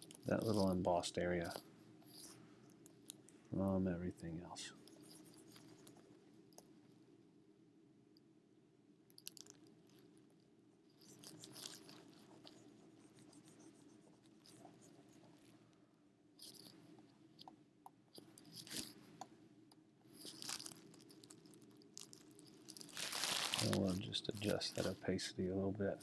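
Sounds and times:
soft scratchy rubbing: 0:00.0 - 0:07.0, 0:10.9 - 0:15.8, 0:22.3 - 0:26.0
faint low room hum: 0:00.0 - 0:26.0.

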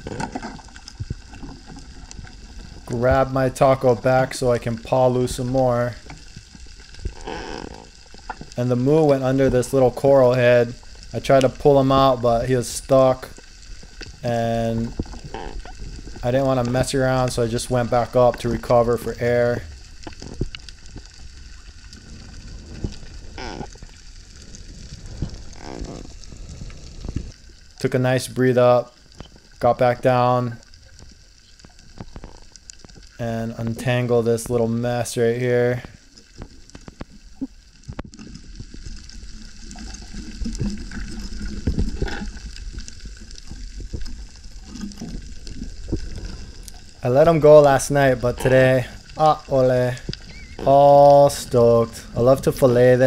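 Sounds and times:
underwater rumble and hiss: 0:00.0 - 0:53.0
faint clicks: 0:19.7 - 0:27.8, 0:35.8 - 0:47.0, 0:50.0 - 0:50.6.

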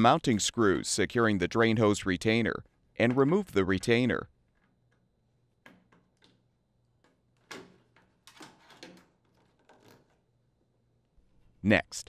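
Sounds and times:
plastic knocks and rustles: 0:07.0 - 0:10.2.

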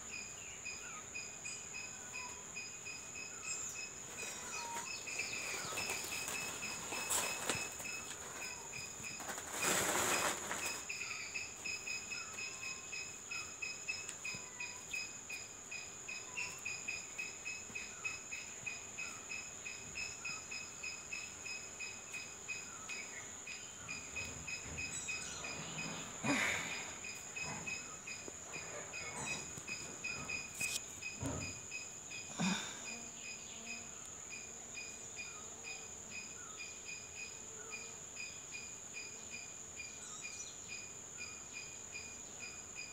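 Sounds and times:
insects chirping: 0:00.0 - 0:42.9
rustling bursts: 0:05.2 - 0:10.9.

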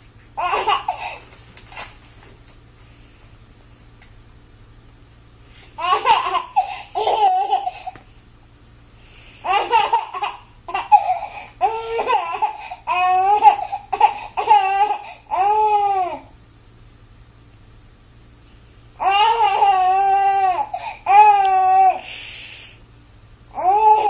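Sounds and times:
baby laughing: 0:00.4 - 0:01.2, 0:05.8 - 0:08.0, 0:09.4 - 0:16.2.

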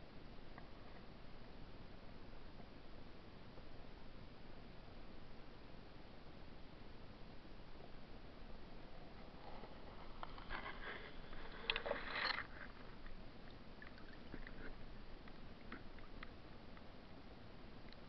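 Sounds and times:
low hiss: 0:00.0 - 0:18.0
water splashing and sloshing: 0:09.2 - 0:16.4
faint ticks: 0:10.2 - 0:16.9.

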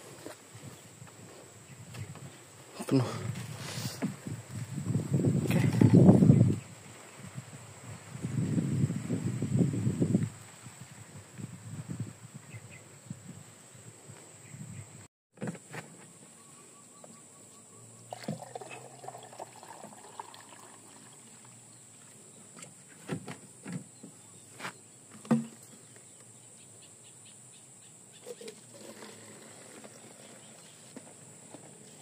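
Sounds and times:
liquid pouring and splashing: 0:18.1 - 0:21.5.

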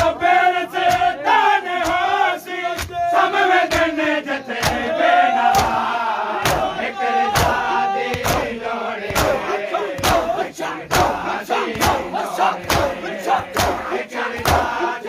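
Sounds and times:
crowd of men chanting: 0:00.0 - 0:15.0
hands slapping chests: 0:00.8 - 0:01.2, 0:01.8 - 0:03.0, 0:03.6 - 0:04.0, 0:04.6 - 0:04.9, 0:05.5 - 0:06.7, 0:07.3 - 0:14.9.

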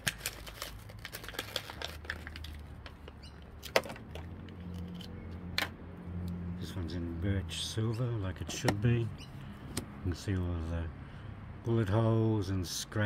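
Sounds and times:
plastic packaging crackling: 0:00.0 - 0:05.1
plastic packaging snapping: 0:00.0 - 0:05.1.

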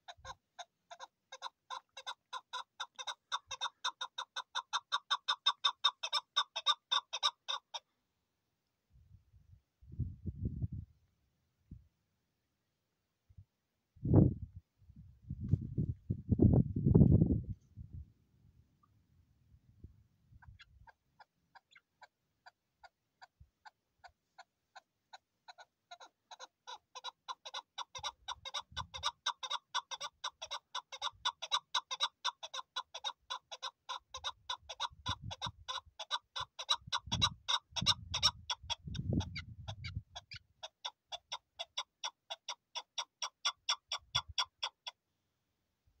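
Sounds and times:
partridge clucking calls: 0:00.0 - 0:07.8, 0:20.4 - 0:45.0.

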